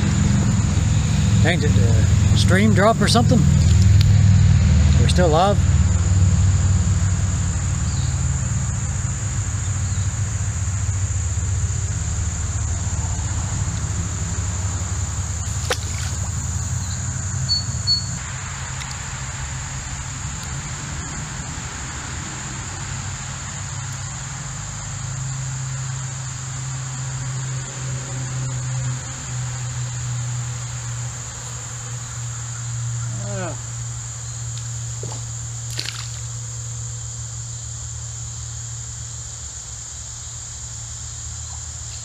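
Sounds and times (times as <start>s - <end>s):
high-pitched insect drone: 0.0s - 42.0s
highway traffic rumble: 0.0s - 42.0s
short high chirps: 17.5s - 18.2s.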